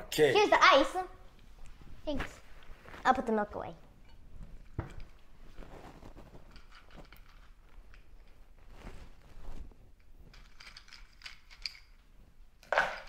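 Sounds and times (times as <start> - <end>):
rustling: 1.5 - 13.0
soft knocks and clinks: 3.8 - 9.0.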